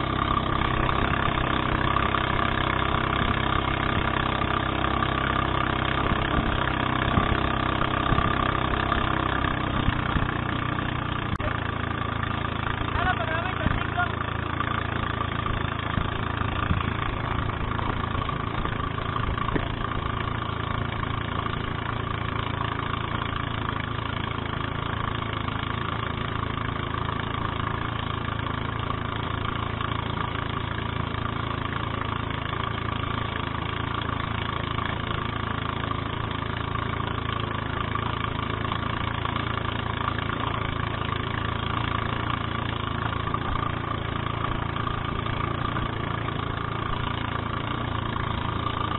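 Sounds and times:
boat engine running: 0.0 - 48.9.

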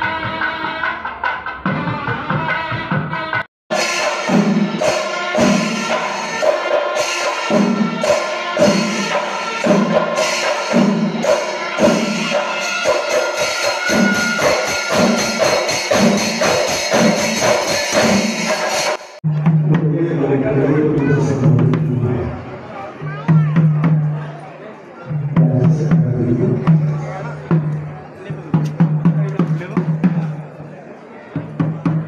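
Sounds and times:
drums playing fast: 0.0 - 22.0, 23.0 - 24.2, 25.1 - 30.6, 31.3 - 32.0
heavy drum stroke: 3.7 - 20.1
hand cymbals clashing: 3.8 - 19.1.

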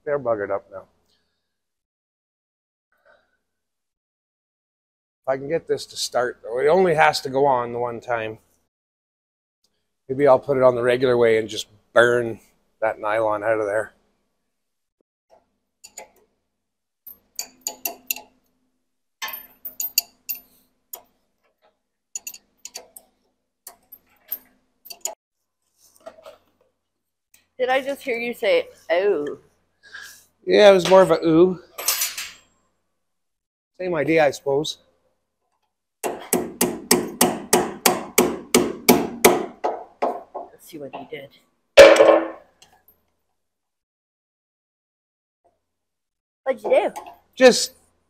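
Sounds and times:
hammer striking metal: 41.8 - 42.4.

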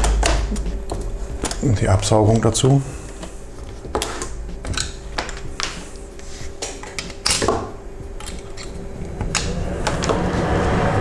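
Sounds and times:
hand tools clicking and knocking: 3.9 - 10.1.

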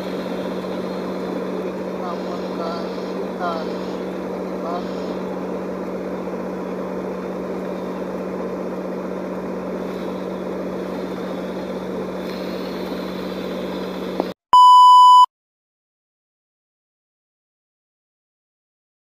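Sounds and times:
engine drone: 0.0 - 14.4
test tone beep: 14.5 - 15.3.

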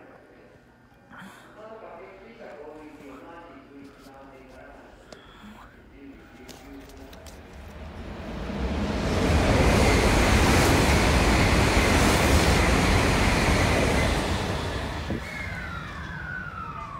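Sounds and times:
train passing at speed: 7.4 - 16.9.

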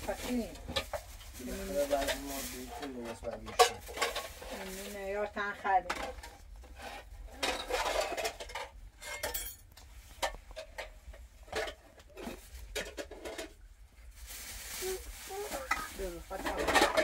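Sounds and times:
dishes and utensils clinking: 1.8 - 4.7, 7.4 - 13.6, 15.6 - 17.0.

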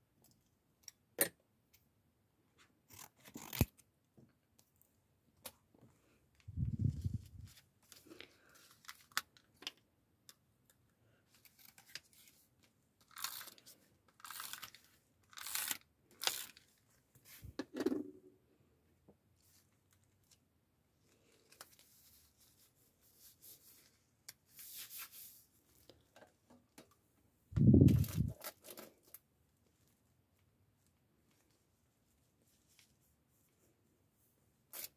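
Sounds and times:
paper rustling and scraping: 21.2 - 25.5, 27.6 - 28.9.

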